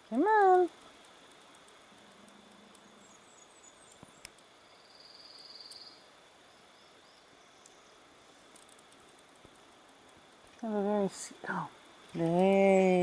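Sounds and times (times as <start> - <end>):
faint high chirps: 2.8 - 8.1.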